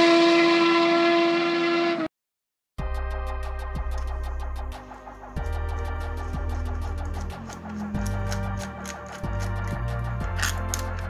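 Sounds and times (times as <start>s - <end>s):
background music with bass and ticking beat: 2.8s - 11.0s.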